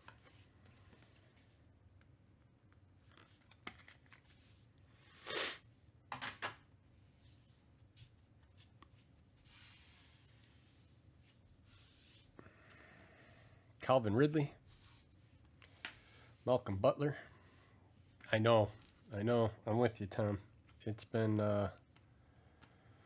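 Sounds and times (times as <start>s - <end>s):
trading cards rustling and sliding: 3.0s - 5.5s, 7.0s - 12.4s.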